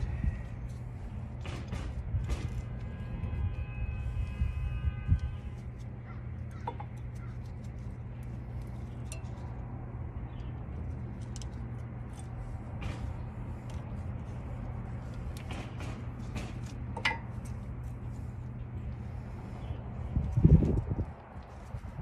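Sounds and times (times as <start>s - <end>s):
low background hum: 0.0s - 22.0s
small metallic clicks and clinks: 6.5s - 9.6s.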